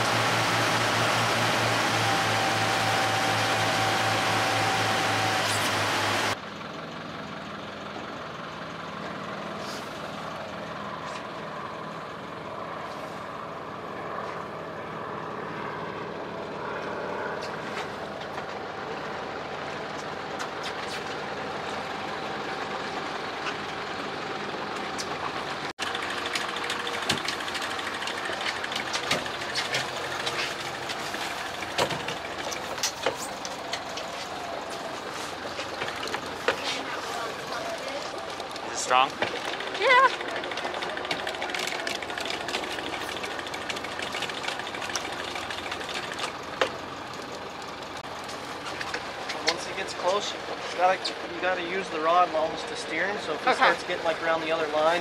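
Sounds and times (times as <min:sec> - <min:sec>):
boat motor running: 0:00.0 - 0:06.4, 0:16.5 - 0:52.5
water along hull: 0:00.0 - 0:06.4, 0:25.3 - 0:50.9.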